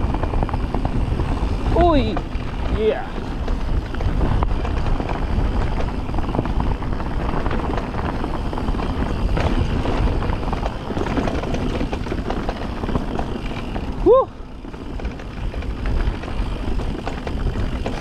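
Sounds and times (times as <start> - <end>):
bike clicking and rattling: 0.0 - 18.0
wind rumbling on microphone: 0.0 - 18.0.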